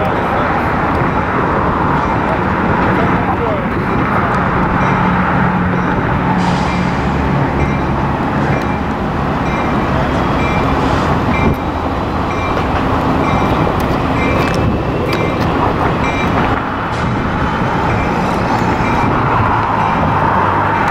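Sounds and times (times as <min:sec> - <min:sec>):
diesel locomotive rumbling: 0:00.0 - 0:20.9
locomotive bell ringing: 0:03.4 - 0:17.0, 0:17.8 - 0:19.2.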